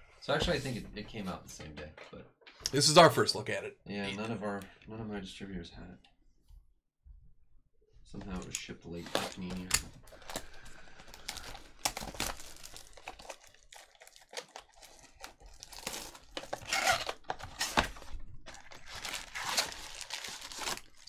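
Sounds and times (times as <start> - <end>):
plastic wrap tearing and crinkling: 9.0 - 21.0.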